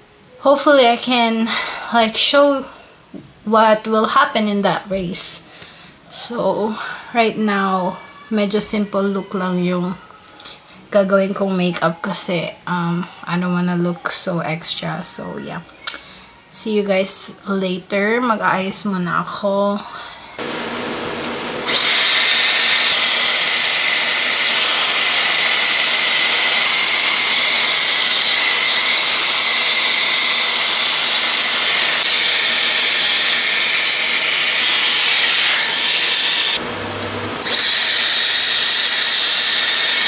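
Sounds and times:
hair styler blowing air: 20.4s - 40.0s.

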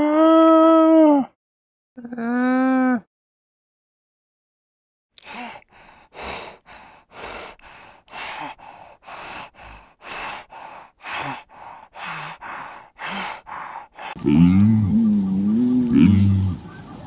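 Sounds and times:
animal breathing heavily: 5.3s - 14.3s.

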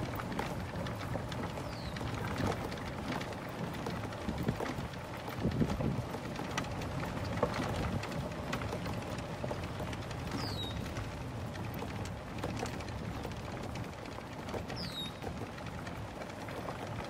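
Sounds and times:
light clicks and rustles: 0.0s - 17.0s
wind on microphone: 4.1s - 8.5s.

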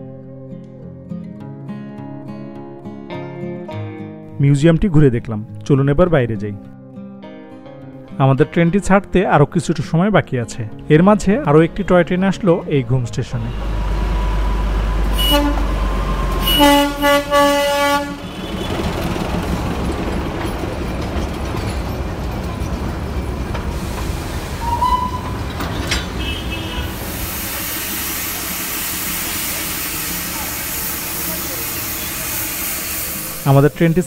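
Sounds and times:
train running noise: 13.2s - 34.0s
train whistle: 13.5s - 19.0s, 23.9s - 33.4s
steam hissing: 23.5s - 34.0s.

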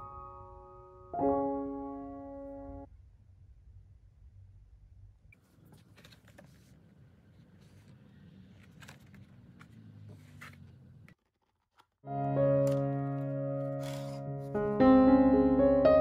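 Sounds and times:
background music: 12.1s - 16.0s.

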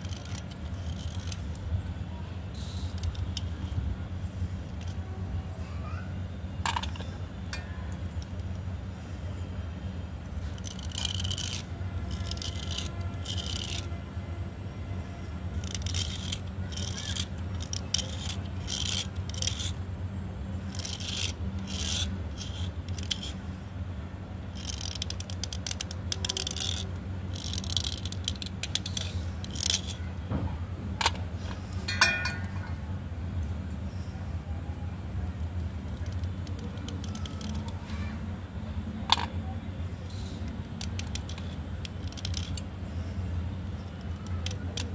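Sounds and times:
blade scraping pencil: 0.0s - 1.6s, 10.5s - 14.0s, 15.6s - 19.8s, 20.7s - 23.4s
steady low hum: 0.0s - 44.9s
pencil clinking on steel: 31.9s - 32.8s.

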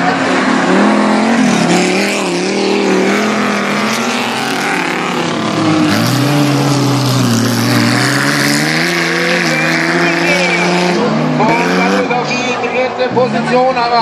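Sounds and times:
stock car engines racing: 0.0s - 14.0s.

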